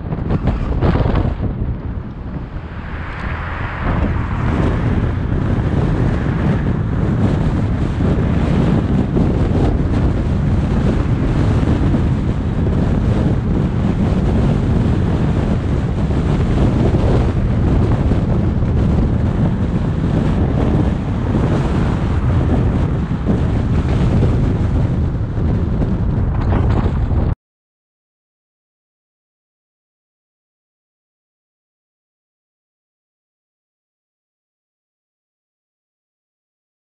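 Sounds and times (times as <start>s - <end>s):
car driving rumble: 0.0s - 27.4s
wind buffeting microphone: 0.0s - 27.4s.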